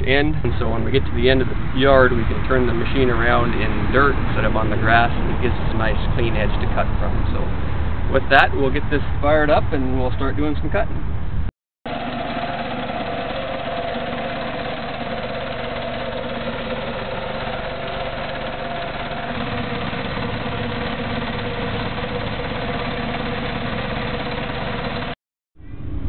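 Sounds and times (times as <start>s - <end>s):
small gasoline engine running: 11.9s - 25.2s.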